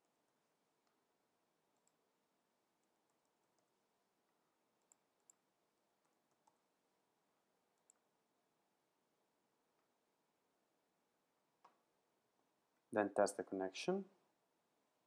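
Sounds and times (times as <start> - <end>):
faint keyboard and mouse clicks: 0.8 - 1.0, 1.7 - 2.0, 2.8 - 3.8, 4.8 - 6.7, 7.7 - 8.1, 11.6 - 11.9.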